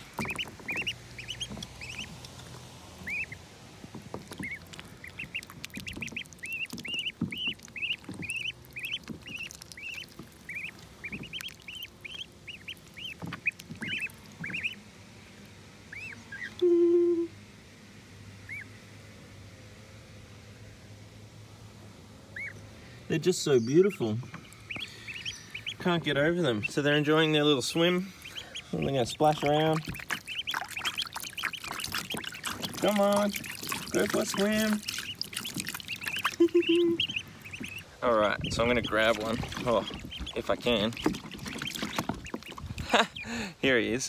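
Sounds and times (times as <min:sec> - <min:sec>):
light water splashing: 0:00.0 - 0:16.5, 0:24.0 - 0:43.2
ducklings peeping: 0:00.0 - 0:17.3, 0:18.3 - 0:19.0, 0:22.1 - 0:44.0
brief low tone: 0:16.6 - 0:17.4.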